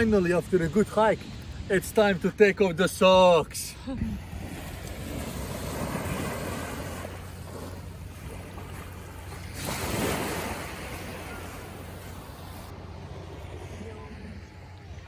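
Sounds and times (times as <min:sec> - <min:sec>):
small waves washing on sand: 0:04.2 - 0:15.0.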